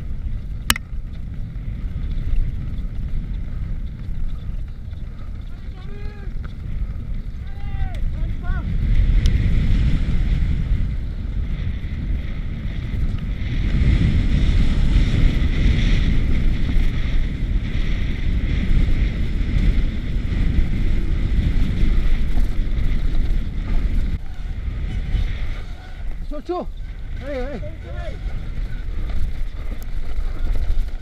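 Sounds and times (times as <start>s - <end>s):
bike rattling: 0.0s - 31.0s
wind rushing over microphone: 0.0s - 31.0s
tyres rolling on dirt: 0.1s - 7.6s, 19.2s - 31.0s.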